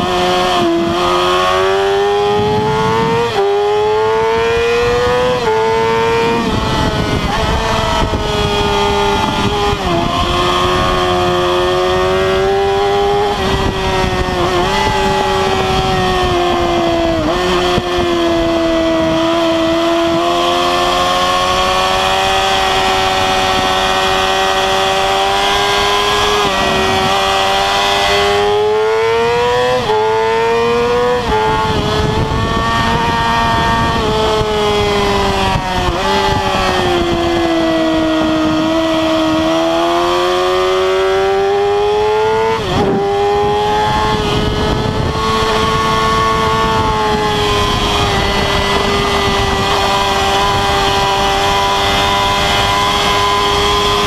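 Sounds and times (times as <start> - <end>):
motorcycle engine at high revs: 0.0 - 54.0
wind rush: 0.0 - 54.0.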